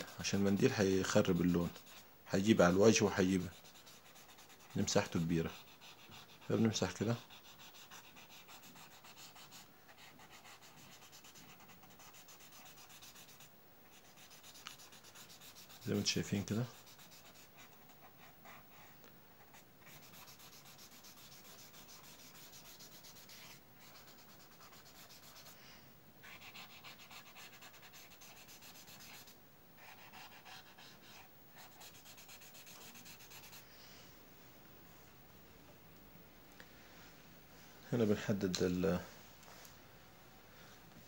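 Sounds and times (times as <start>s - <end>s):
tissue rubbing on paper: 19.9s - 25.6s.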